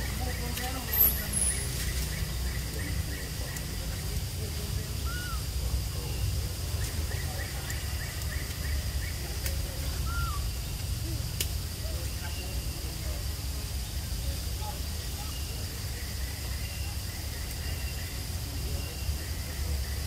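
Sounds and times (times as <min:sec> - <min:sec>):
faint bird chirps: 0:00.0 - 0:20.0
short rising-and-falling calls: 0:10.0 - 0:10.6.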